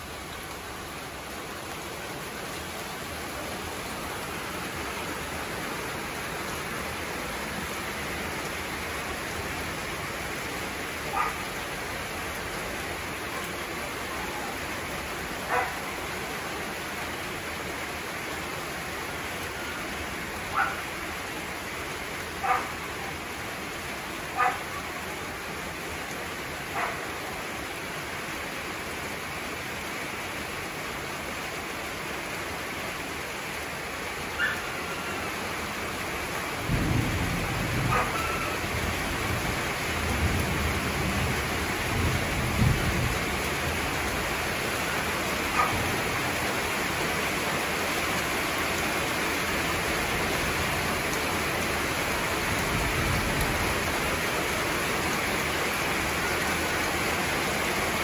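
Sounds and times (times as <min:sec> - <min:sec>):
heavy rain falling: 0:00.0 - 0:58.0
dog barking: 0:11.1 - 0:11.5, 0:15.5 - 0:15.9, 0:20.5 - 0:20.9, 0:22.4 - 0:22.8, 0:24.4 - 0:24.8, 0:26.7 - 0:27.2, 0:34.4 - 0:34.7, 0:37.9 - 0:38.6, 0:45.5 - 0:45.9
thunder rumbling: 0:36.6 - 0:43.8.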